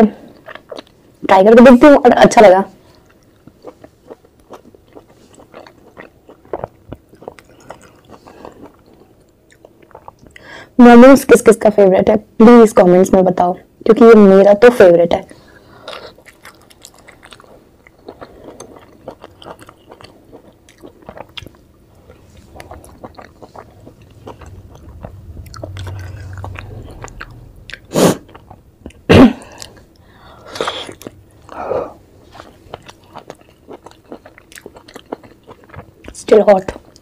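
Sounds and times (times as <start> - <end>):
wet chewing: 0.3 - 1.0, 2.9 - 10.5, 15.3 - 37.0.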